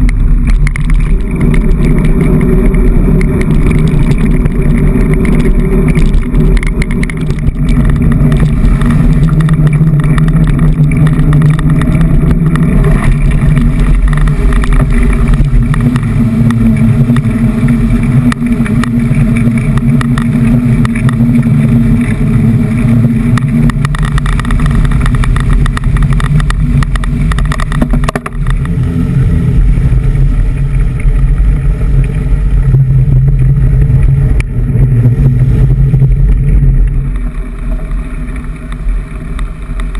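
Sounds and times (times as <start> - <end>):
muffled mountain bike riding rumble: 0.0 - 39.9.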